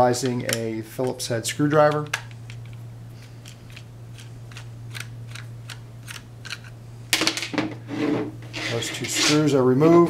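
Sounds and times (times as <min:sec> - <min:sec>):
steady low hum: 0:00.0 - 0:10.0
plastic parts handling noise: 0:00.1 - 0:07.8.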